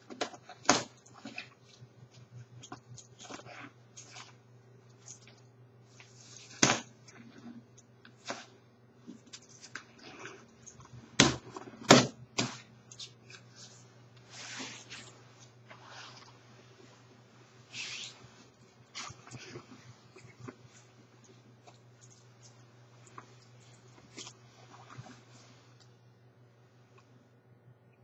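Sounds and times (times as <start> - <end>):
nylon jacket rustling: 13.3 - 21.2.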